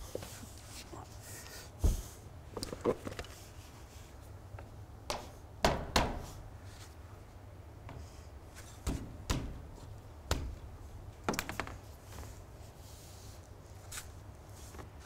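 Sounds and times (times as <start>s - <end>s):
hammer knocking on sheet metal: 5.6s - 6.3s.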